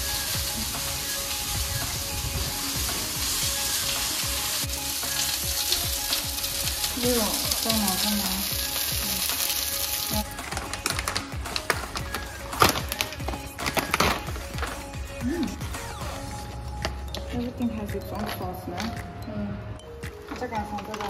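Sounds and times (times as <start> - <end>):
food sizzling in oil: 0.0 - 13.6
plastic packaging crackling: 5.6 - 14.9, 20.2 - 21.0.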